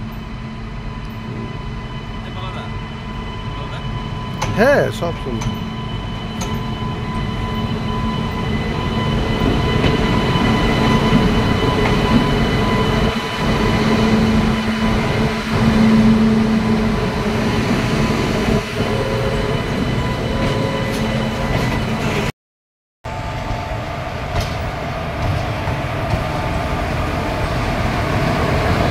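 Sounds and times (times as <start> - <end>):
high locomotive whine: 0.0 - 22.3, 23.1 - 28.9
locomotive rumbling on rails: 0.0 - 22.3, 23.1 - 28.9.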